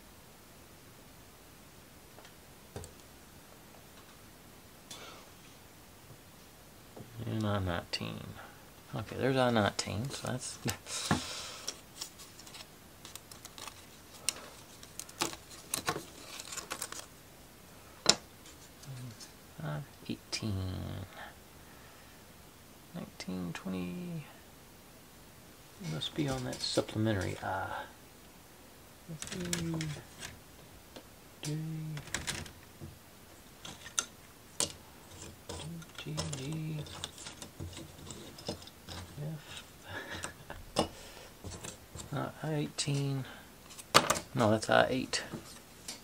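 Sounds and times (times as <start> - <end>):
person humming: 18.8 - 19.3, 20.3 - 21.3, 29.1 - 30.1, 31.4 - 32.2
plywood parts clicking: 29.2 - 30.4
clicks and taps of plywood pieces: 43.7 - 44.3.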